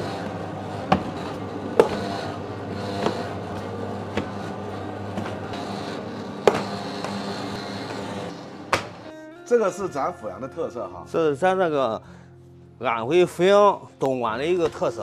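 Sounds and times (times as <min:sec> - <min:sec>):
dough sheeter motor hum: 0:00.0 - 0:09.0.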